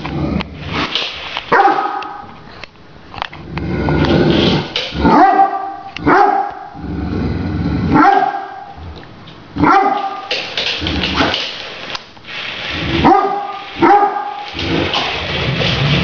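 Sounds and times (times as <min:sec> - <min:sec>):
dog barking: 0:01.5 - 0:02.3, 0:05.0 - 0:06.8, 0:07.9 - 0:08.7, 0:09.6 - 0:10.3, 0:13.0 - 0:14.4.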